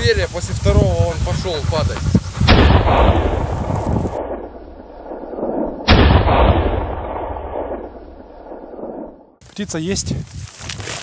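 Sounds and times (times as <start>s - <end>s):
shotgun shots: 2.5s - 9.2s.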